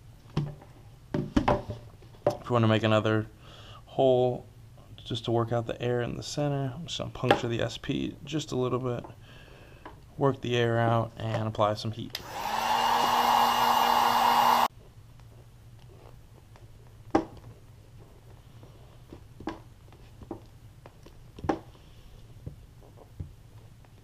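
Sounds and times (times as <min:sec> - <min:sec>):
heat gun whining: 0:12.1 - 0:14.7.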